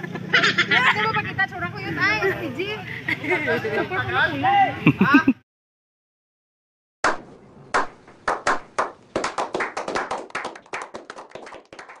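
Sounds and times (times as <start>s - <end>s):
small group clapping: 7.1s - 12.0s.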